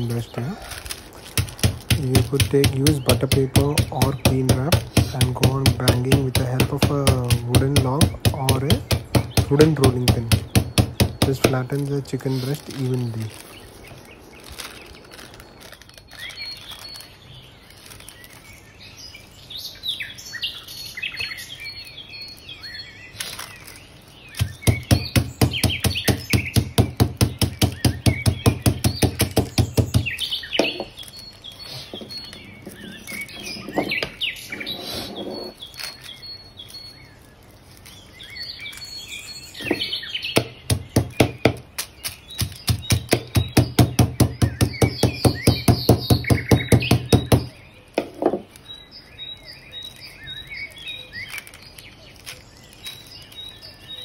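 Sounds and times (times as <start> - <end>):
recorded birds chirping: 0.0 - 54.0
log pounding meat on wooden table: 1.2 - 12.0, 24.3 - 31.0, 31.7 - 34.7, 39.6 - 48.5.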